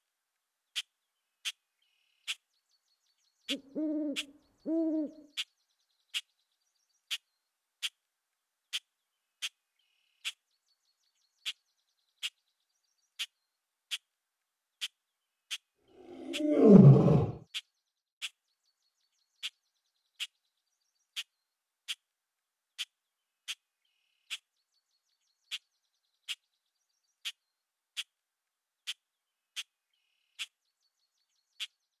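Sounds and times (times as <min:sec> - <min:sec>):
deep animal roar: 0:15.9 - 0:17.4.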